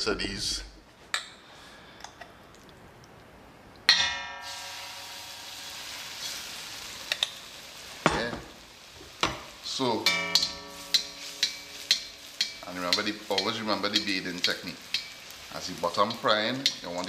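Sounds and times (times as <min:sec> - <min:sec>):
fritter sizzling in oil: 0:04.3 - 0:17.0
spoon clanging on metal: 0:10.0 - 0:15.2, 0:16.0 - 0:17.0.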